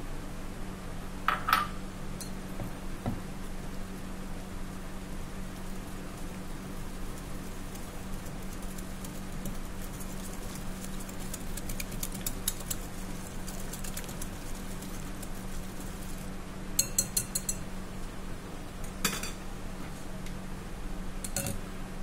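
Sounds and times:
steady low hum: 0:00.0 - 0:22.0
whisk ticking against glass bowl: 0:05.6 - 0:16.2, 0:16.8 - 0:17.7.

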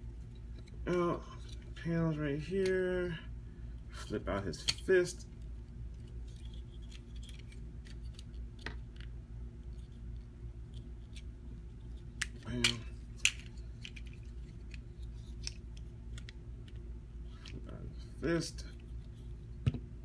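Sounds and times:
plastic toy parts clicking and rattling: 0:06.0 - 0:09.1, 0:10.7 - 0:17.7.

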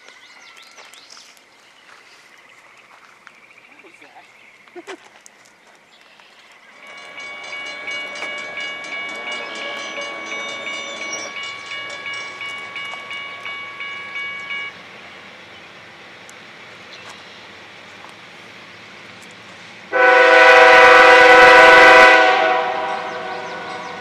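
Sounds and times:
train rumble: 0:06.6 - 0:24.0
locomotive air horn: 0:19.9 - 0:24.0.

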